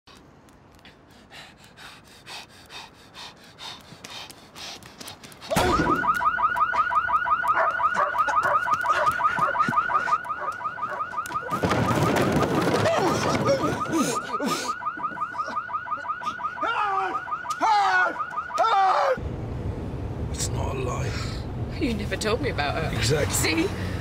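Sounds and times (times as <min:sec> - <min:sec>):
electronic alarm warbling: 0:05.6 - 0:12.2.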